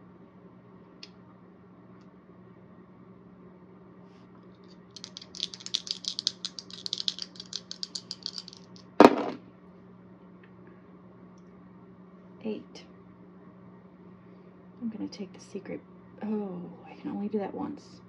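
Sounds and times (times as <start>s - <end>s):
dice clattering on game board: 5.0s - 9.4s
dice rattling in hands: 5.0s - 9.4s.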